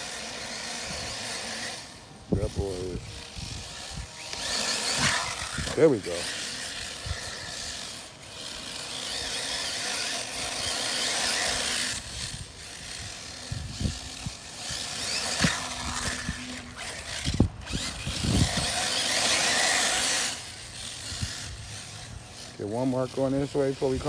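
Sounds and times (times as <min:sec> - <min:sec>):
electric motor whirring: 0:00.0 - 0:24.0.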